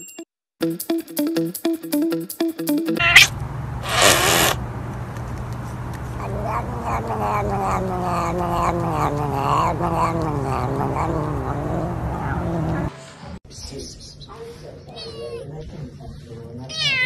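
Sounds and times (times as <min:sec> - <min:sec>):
cat hissing: 0:03.0 - 0:04.6, 0:06.2 - 0:12.9
cat yowling: 0:03.0 - 0:04.6, 0:06.2 - 0:12.9.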